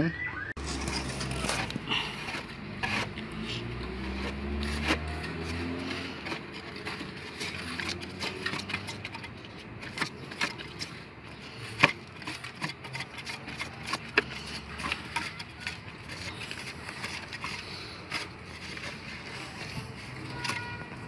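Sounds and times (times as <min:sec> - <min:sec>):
tools clicking on plastic: 0:04.8 - 0:11.0.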